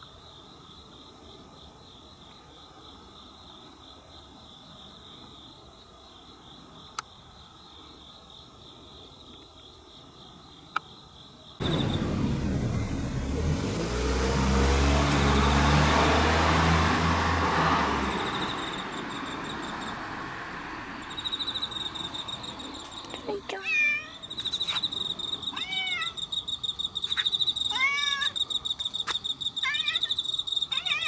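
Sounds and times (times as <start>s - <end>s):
crickets chirring: 0.0s - 13.8s, 14.6s - 31.0s
car passing: 11.6s - 23.3s.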